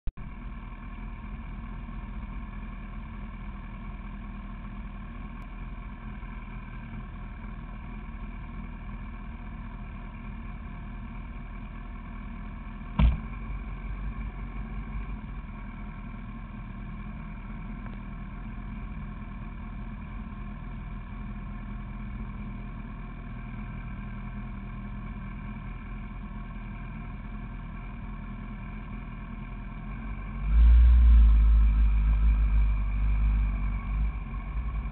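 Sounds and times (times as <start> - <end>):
motorcycle engine idling: 0.2 - 30.4
sharp clunk: 13.0 - 13.3.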